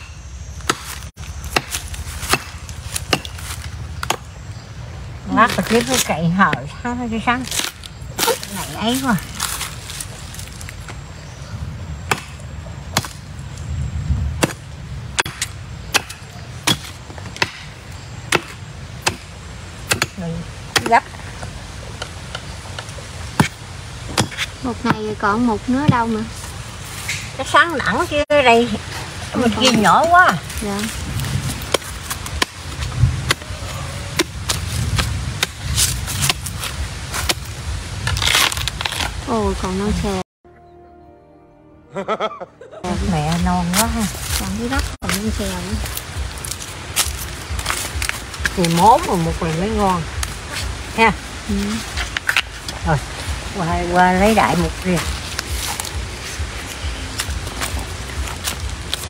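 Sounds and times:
machete chopping bamboo: 0:00.6 - 0:04.2, 0:12.1 - 0:13.2, 0:14.4 - 0:14.6, 0:15.2 - 0:21.1, 0:22.0 - 0:25.1, 0:31.6 - 0:39.1.

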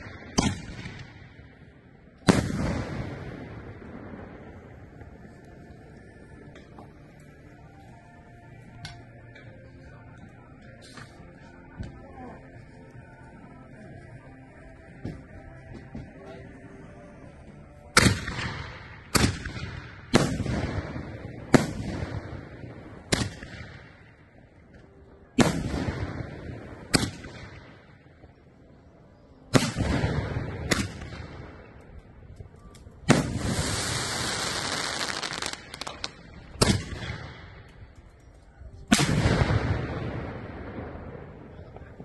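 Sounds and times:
firework hissing: 0:33.2 - 0:36.1.

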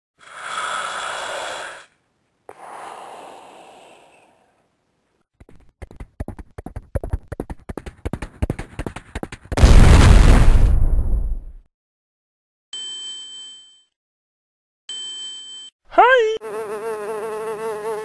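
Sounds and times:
hiss: 0:00.2 - 0:04.6
loud boom: 0:09.6 - 0:11.6.

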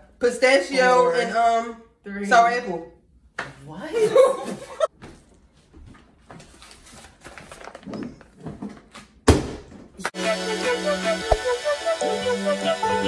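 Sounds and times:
loud hand slap: 0:11.2 - 0:11.6.

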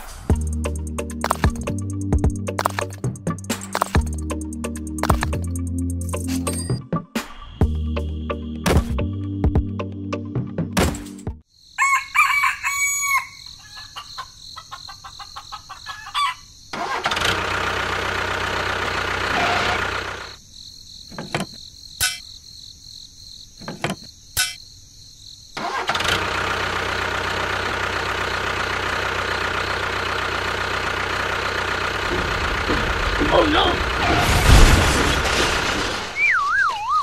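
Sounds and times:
sharp clicks: 0:02.6 - 0:04.2
rooster crowing: 0:11.8 - 0:16.5
engine running: 0:16.8 - 0:20.4, 0:25.6 - 0:36.0.

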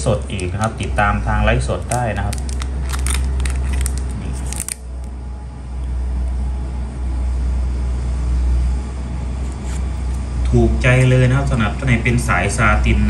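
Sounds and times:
plastic sleeves crinkling: 0:00.0 - 0:00.9, 0:01.7 - 0:05.1
low hum: 0:00.0 - 0:13.0.

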